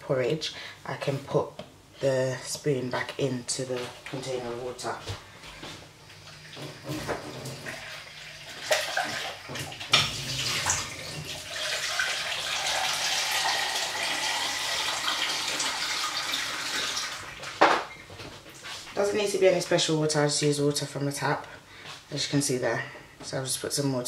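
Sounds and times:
water running from a tap: 6.2 - 17.5.

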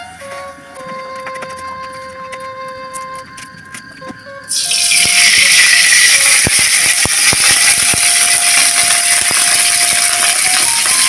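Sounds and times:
hot oil sizzling in a wok: 4.5 - 11.0.

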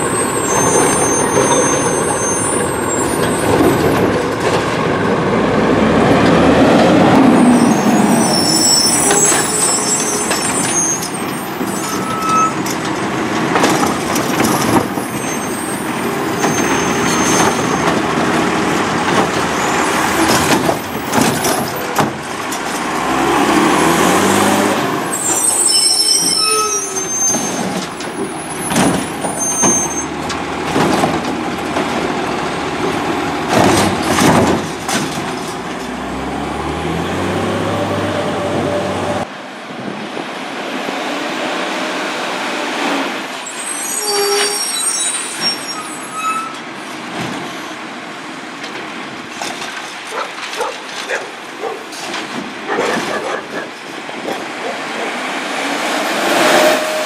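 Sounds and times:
short high squeaks: 0.1 - 3.5, 7.4 - 12.7, 13.9 - 17.9, 25.1 - 30.2, 43.5 - 46.7
diesel engine revving: 4.8 - 9.8, 15.9 - 25.8, 27.6 - 39.3
metal clanks and bangs: 9.0 - 23.3, 27.2 - 36.1.

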